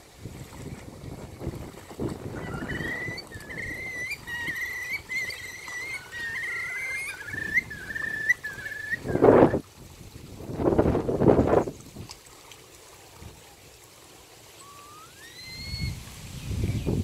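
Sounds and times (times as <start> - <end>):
low wind rumble: 0.0 - 4.4, 9.0 - 12.1
wind gust on microphone: 0.0 - 12.1, 15.4 - 17.0
whimbrels calling in whistled trills: 2.4 - 9.6, 14.6 - 17.0.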